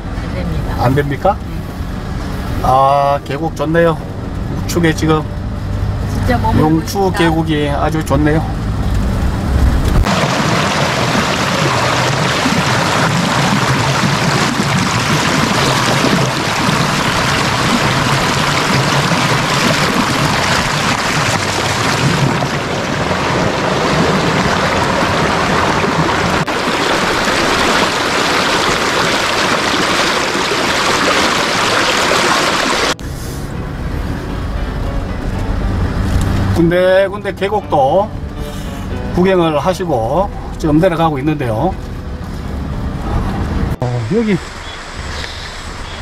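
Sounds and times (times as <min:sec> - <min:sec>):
mountain stream rushing: 0:10.0 - 0:33.0, 0:42.6 - 0:46.0.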